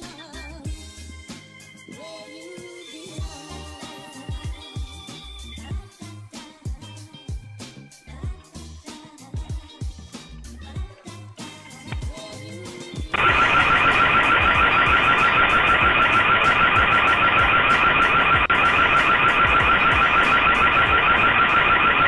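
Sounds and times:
warbling electronic alarm siren: 0:13.1 - 0:22.0.

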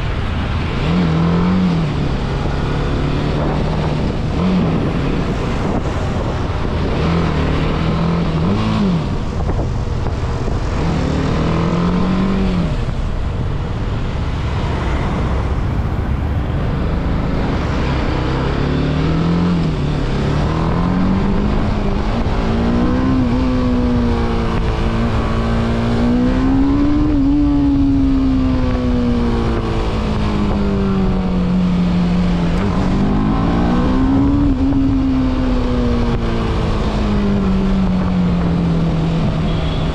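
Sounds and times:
wind rush on microphone: 0:00.0 - 0:39.9.

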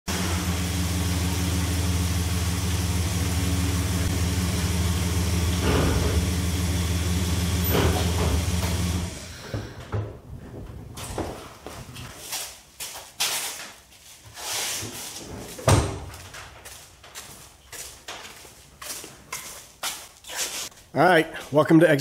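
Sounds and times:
truck engine idling: 0:00.1 - 0:09.4.

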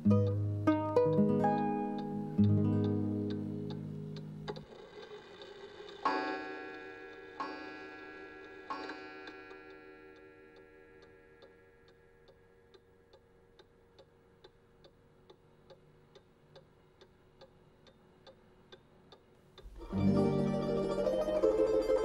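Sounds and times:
balalaika music: 0:00.0 - 0:04.7, 0:19.6 - 0:22.0
clock ticking: 0:00.0 - 0:22.0.

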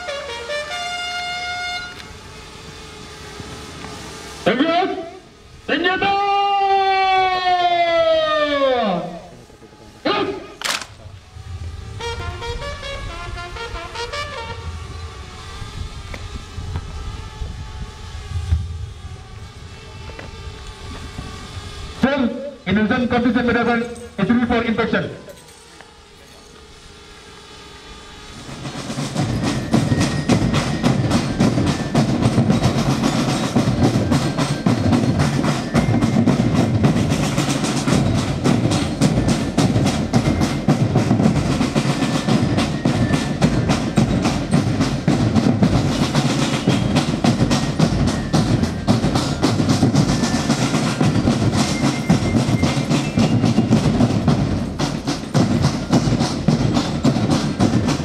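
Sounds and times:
marching drum line playing: 0:28.4 - 0:58.0.

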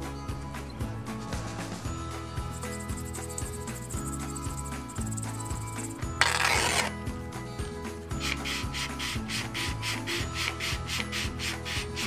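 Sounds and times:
sandpaper tearing: 0:06.2 - 0:06.9
sandpaper rubbing on wood: 0:08.2 - 0:12.0.

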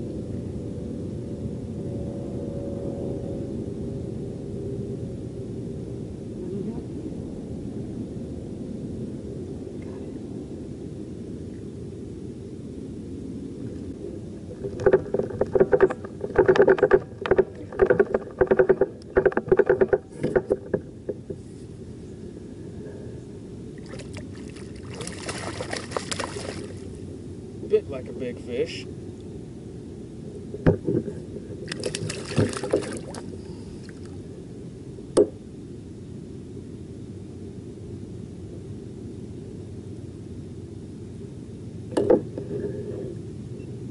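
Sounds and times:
low rumbling background noise: 0:00.0 - 0:43.9
fish splashing: 0:23.8 - 0:27.0, 0:31.6 - 0:34.1.

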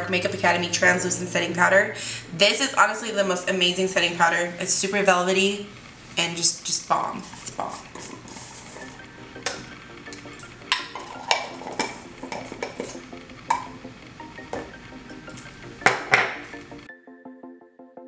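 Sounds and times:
containers clicking and tapping: 0:07.3 - 0:16.5
electronic music with beat: 0:08.1 - 0:17.4.

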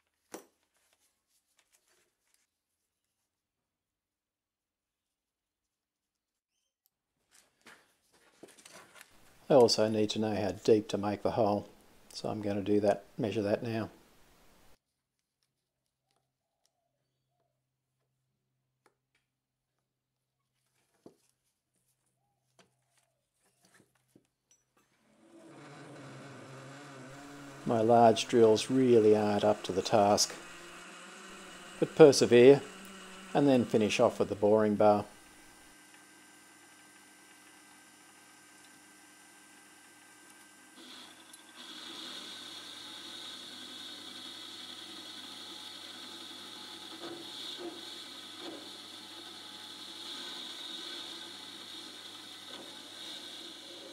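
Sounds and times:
drill boring into steel: 0:25.1 - 0:53.9
metal lathe humming: 0:25.1 - 0:53.9.

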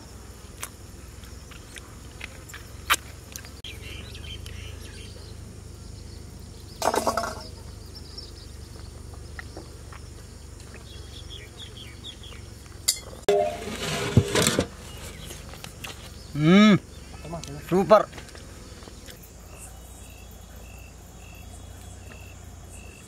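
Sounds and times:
metal pot clinking: 0:12.9 - 0:14.7
faint bird chirps: 0:14.8 - 0:17.9, 0:18.6 - 0:23.0.

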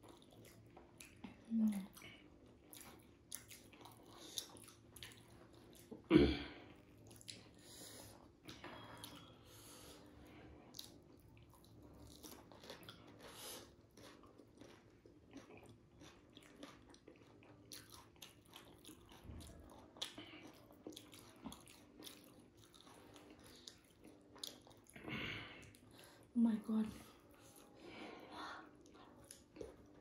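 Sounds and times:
mouth chewing sounds: 0:00.0 - 0:26.3, 0:26.9 - 0:30.0
crisp food crunching: 0:13.9 - 0:25.0.

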